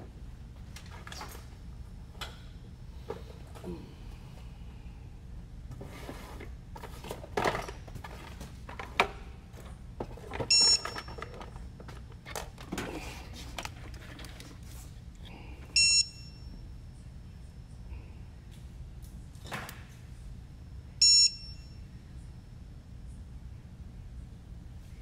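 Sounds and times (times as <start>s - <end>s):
handling clicks and knocks: 7.0s - 14.6s.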